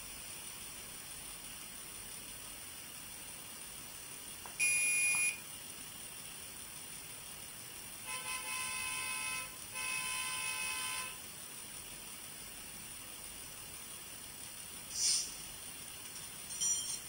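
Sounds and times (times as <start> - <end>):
short high beep: 4.6 - 5.4
model train horn blasts: 8.0 - 11.2.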